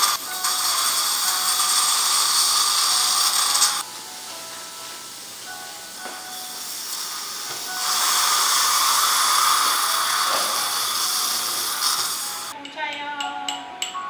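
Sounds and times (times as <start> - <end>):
surgical suction: 0.0 - 3.8, 6.4 - 12.5
dental drill whining: 0.0 - 3.9, 5.8 - 12.5
hiss of saline irrigation: 0.0 - 3.9, 6.3 - 12.5.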